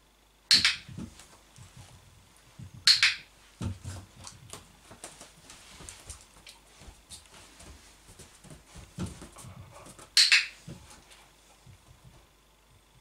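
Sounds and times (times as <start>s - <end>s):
training clicker clicking: 10.2s - 10.5s.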